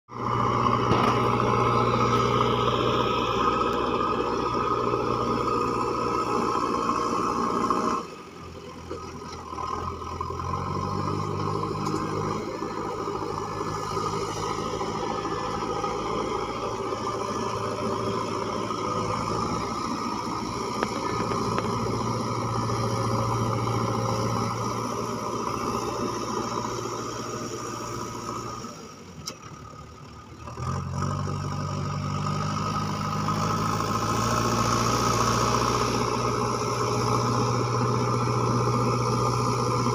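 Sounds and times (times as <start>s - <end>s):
diesel engine running: 0.1s - 39.9s.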